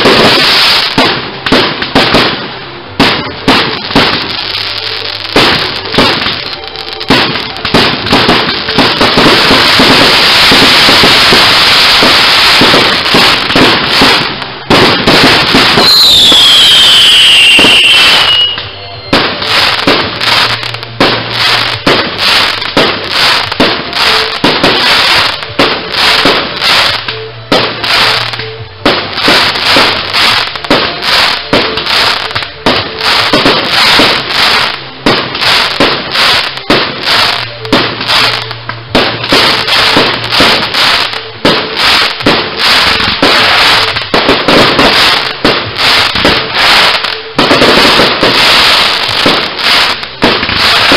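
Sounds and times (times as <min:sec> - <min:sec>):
fireworks bursting and crackling: 0:00.0 - 0:50.9
falling firework whistle: 0:03.4 - 0:38.4.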